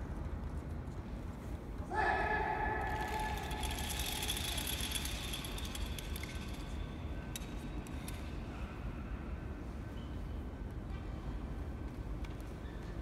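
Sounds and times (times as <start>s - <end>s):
gear clinking and rattling: 2.9s - 8.3s.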